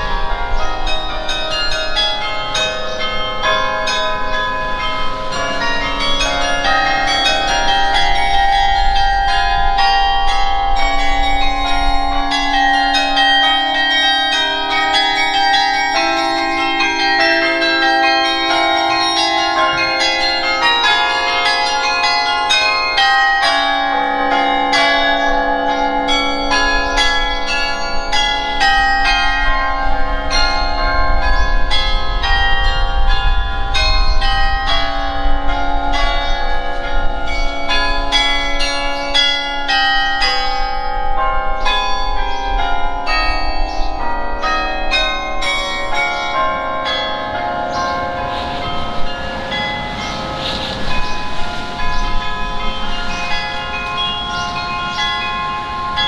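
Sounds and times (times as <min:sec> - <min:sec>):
carillon bells playing: 0:00.0 - 0:56.0.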